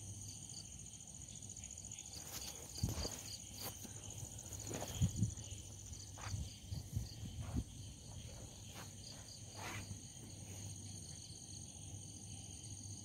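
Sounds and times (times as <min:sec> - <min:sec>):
crickets chirping: 0:00.0 - 0:13.0
soft low thumps: 0:02.7 - 0:10.4.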